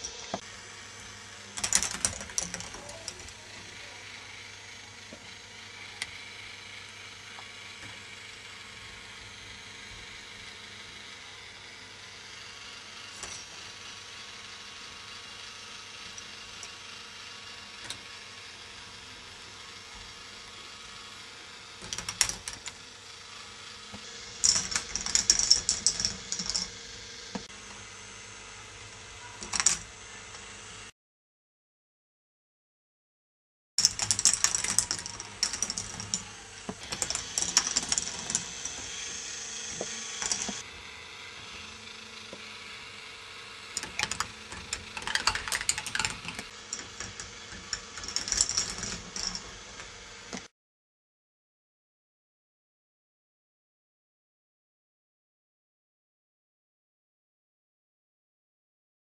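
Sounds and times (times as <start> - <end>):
ball machine motor whirring: 0.0 - 30.9, 33.8 - 50.5
balls ticking on plastic track: 1.6 - 3.4, 24.4 - 26.7, 33.8 - 36.3, 36.9 - 38.8, 43.8 - 50.5.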